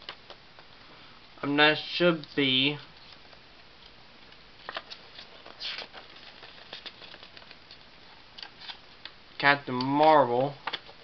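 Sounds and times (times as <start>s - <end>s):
paper rustling: 4.6s - 7.8s.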